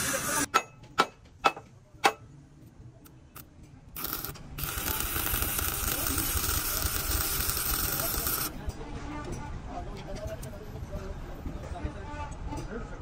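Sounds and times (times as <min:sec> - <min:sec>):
arc welder crackling hiss: 0:00.0 - 0:00.5, 0:04.0 - 0:08.5.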